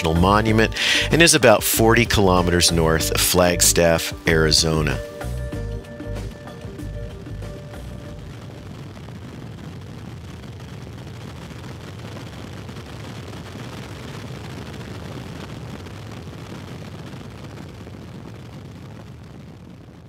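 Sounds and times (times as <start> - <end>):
aircraft rumble: 0.0 - 12.2.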